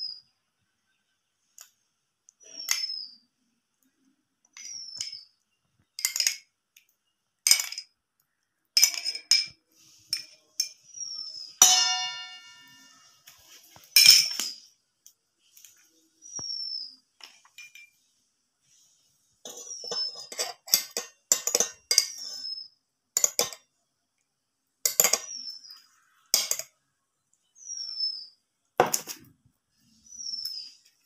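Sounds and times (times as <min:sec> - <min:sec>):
glass bowl clinking on steel bowl: 0:11.6 - 0:13.0
steel bowl ringing: 0:11.6 - 0:13.0.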